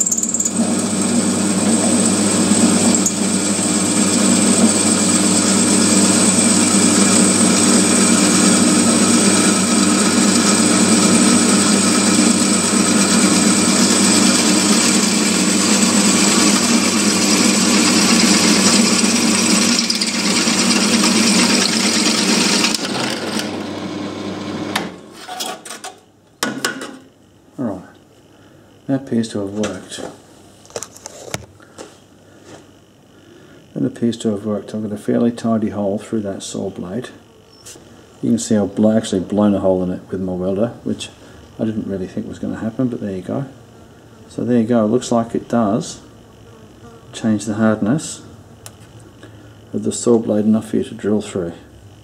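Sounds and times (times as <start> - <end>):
drill winding down: 0.0 - 25.0
drill press humming and whining: 0.0 - 25.7.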